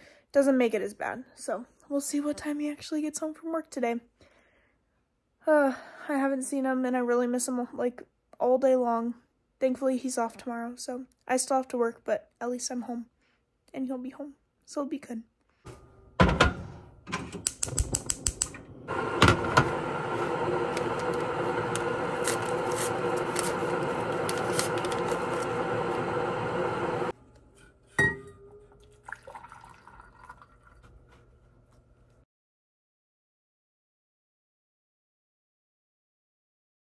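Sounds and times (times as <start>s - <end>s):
gas burner rushing: 16.4s - 27.2s
gas stove igniter clicking: 17.4s - 22.2s
tea packet rustling: 20.1s - 26.6s.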